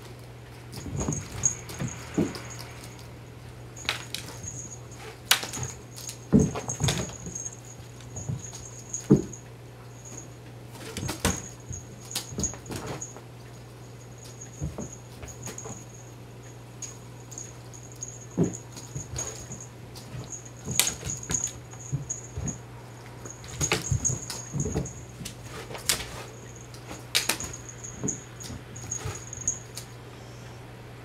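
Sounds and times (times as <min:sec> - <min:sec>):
steady low hum: 0:00.0 - 0:31.0
cat paws thumping and scrabbling: 0:00.6 - 0:09.4, 0:10.0 - 0:16.1, 0:16.8 - 0:30.0
faint high whir: 0:16.8 - 0:31.0.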